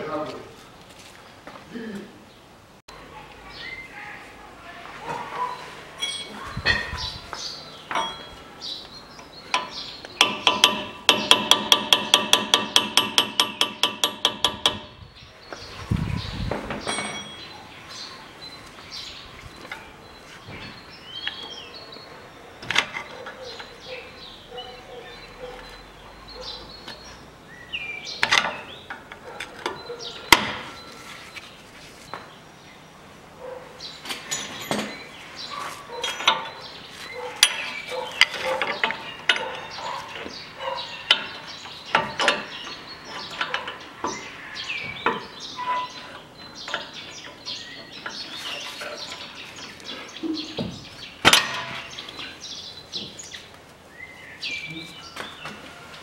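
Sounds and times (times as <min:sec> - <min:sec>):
hand tools tapping metal: 0:06.0 - 0:08.5, 0:09.2 - 0:15.0, 0:16.7 - 0:17.5, 0:34.0 - 0:53.4.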